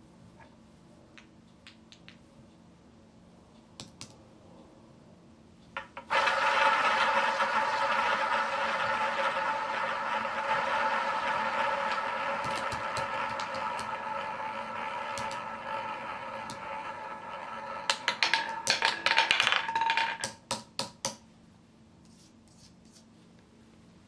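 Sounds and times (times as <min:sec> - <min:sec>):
roulette balls whirring on wheel: 0:05.8 - 0:20.4
roulette balls clattering into pockets: 0:12.5 - 0:13.9, 0:17.8 - 0:20.5.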